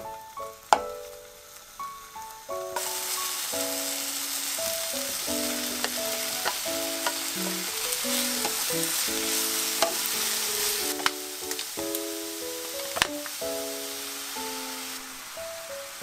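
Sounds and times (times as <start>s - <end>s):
food sizzling in frying pan: 0.0s - 16.0s
simple background melody: 0.0s - 16.0s
spatula tapping pan: 2.8s - 3.4s, 4.6s - 12.1s, 12.7s - 13.4s.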